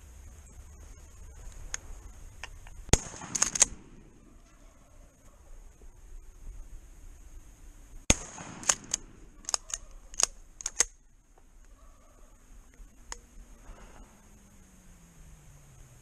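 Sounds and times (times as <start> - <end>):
sharp metallic clicks: 1.4 - 4.1, 8.1 - 11.8
shotgun blast: 2.9 - 4.2, 8.1 - 9.6.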